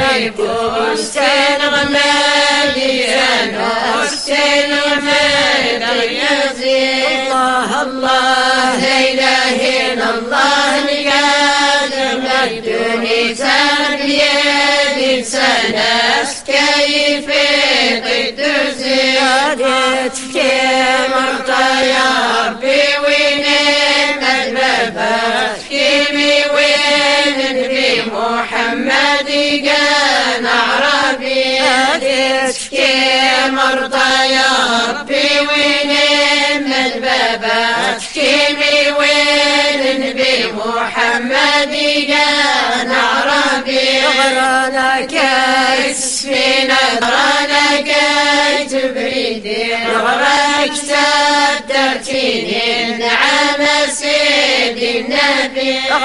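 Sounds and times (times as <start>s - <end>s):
women's vocal group chanting: 0.0s - 56.0s.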